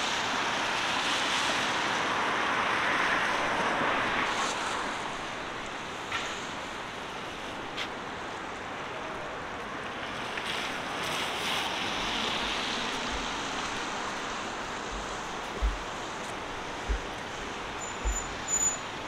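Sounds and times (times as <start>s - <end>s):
city traffic: 0.0s - 19.0s
low thumps: 12.5s - 18.6s.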